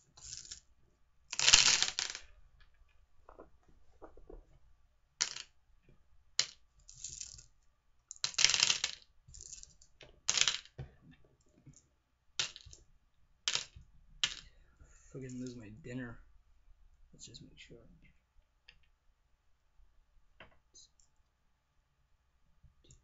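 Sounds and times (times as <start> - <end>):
jelly beans rattling: 0.1 - 0.7, 1.3 - 2.3, 6.4 - 7.5, 8.1 - 10.8
jelly beans clicking: 8.1 - 10.8.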